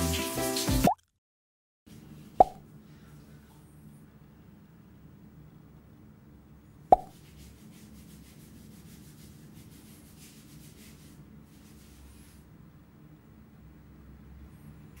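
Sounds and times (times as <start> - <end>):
hands scrubbing lathered hair: 7.2 - 12.4.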